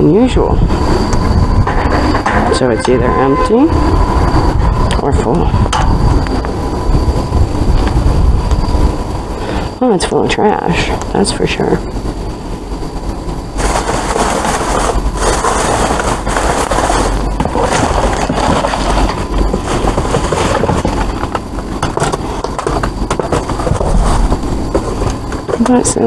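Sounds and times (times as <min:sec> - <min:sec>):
steady low rumble: 0:00.0 - 0:26.0
cardboard boxes scraping: 0:13.6 - 0:26.0
plastic bags rustling: 0:13.6 - 0:26.0.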